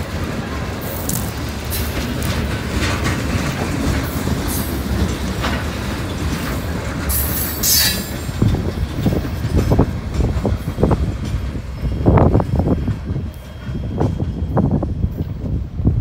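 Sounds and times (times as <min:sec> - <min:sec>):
wheels clacking over rail joints: 0:00.0 - 0:15.6
train wheels rumbling on rails: 0:00.0 - 0:16.0
high wheel squeal: 0:07.1 - 0:08.4.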